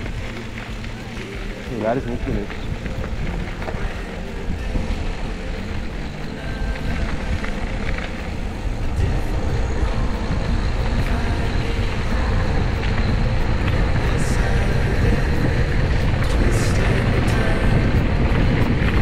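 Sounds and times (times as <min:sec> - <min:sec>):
bike tyres rolling on dirt: 0:00.0 - 0:19.0
wind buffeting microphone: 0:00.0 - 0:19.0.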